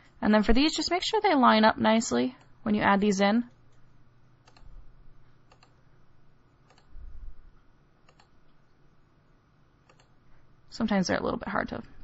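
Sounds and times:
computer mouse clicks: 3.5s - 4.7s, 5.5s - 5.8s, 6.6s - 6.9s, 8.0s - 8.6s, 9.8s - 10.2s.

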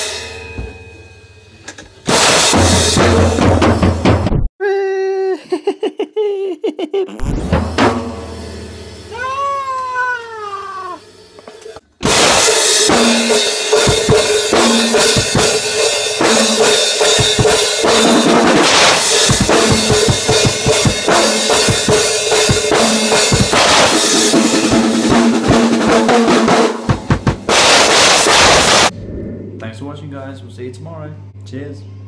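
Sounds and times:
acoustic drum kit playing: 0.0s - 0.7s, 2.0s - 4.5s, 7.2s - 11.0s, 12.0s - 28.9s
high rising and falling call: 9.1s - 11.1s
low hum: 28.4s - 32.0s.

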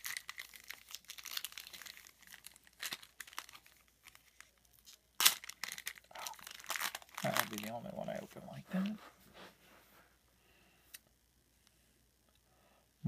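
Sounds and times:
foil wrapper crinkling: 0.0s - 9.0s.

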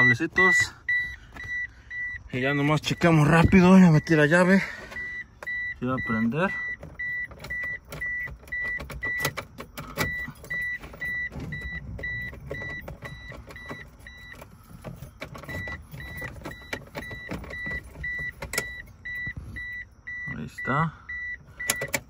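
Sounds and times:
car warning chime beeping: 0.0s - 22.0s
key and hand clicks: 21.6s - 22.0s.

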